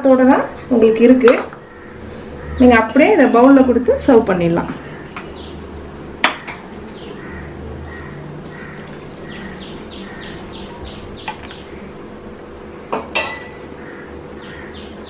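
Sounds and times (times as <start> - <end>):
bird chirping: 5.0 - 5.6, 6.8 - 12.0, 14.4 - 15.0
soup pouring into bowl: 7.8 - 11.6.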